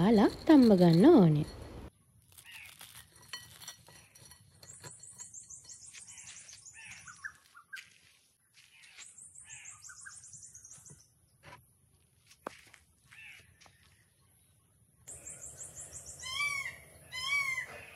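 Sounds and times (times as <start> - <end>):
lower arching bird calls: 15.1 - 17.9.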